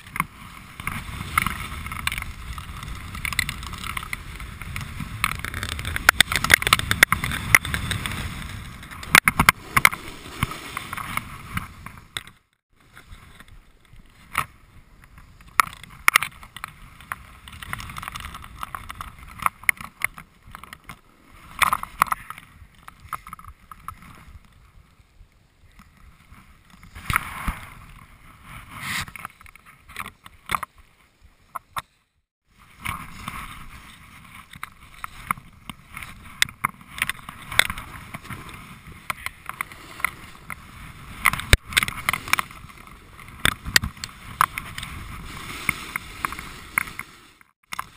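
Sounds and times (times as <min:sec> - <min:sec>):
snowboard scraping over snow: 0:00.0 - 0:12.2, 0:26.0 - 0:29.8, 0:32.5 - 0:47.9.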